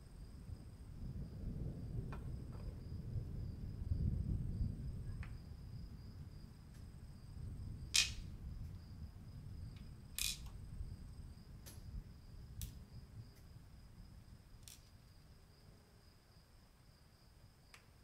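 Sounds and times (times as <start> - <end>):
metal parts tapping on wood: 10.2 - 10.5.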